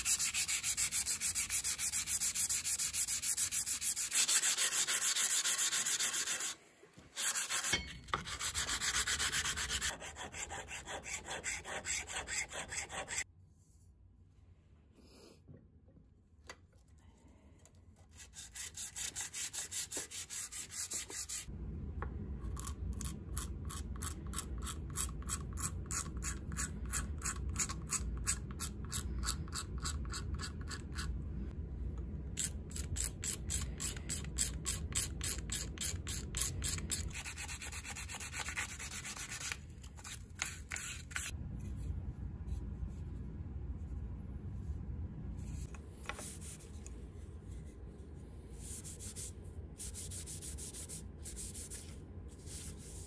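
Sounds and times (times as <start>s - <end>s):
blade rubbing on sandpaper: 0.0s - 6.6s, 7.2s - 13.2s
scraping and sanding wood: 7.2s - 13.2s.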